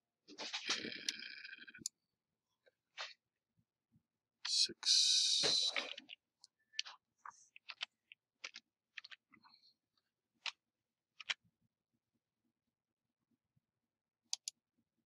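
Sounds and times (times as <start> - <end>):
mouse clicks: 14.3 - 14.6.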